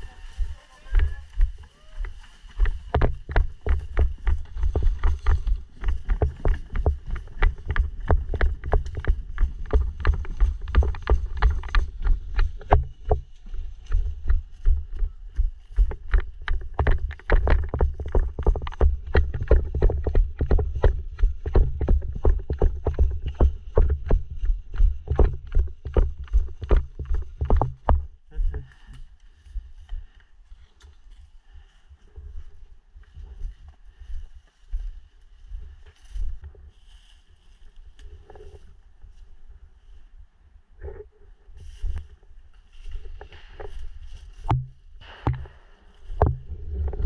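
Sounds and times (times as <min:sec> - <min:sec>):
footsteps walking briskly: 0:00.0 - 0:39.1, 0:41.6 - 0:47.0
gear knocking against microphone: 0:02.6 - 0:28.7, 0:43.1 - 0:47.0.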